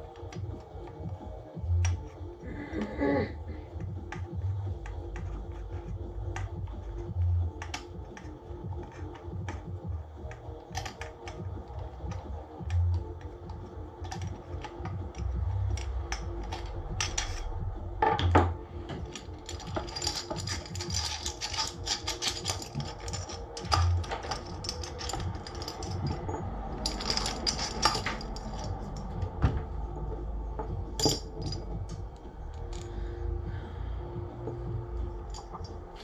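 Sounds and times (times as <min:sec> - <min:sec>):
plastic and metal parts clicking: 0:07.5 - 0:09.7, 0:10.3 - 0:17.5, 0:18.1 - 0:29.4.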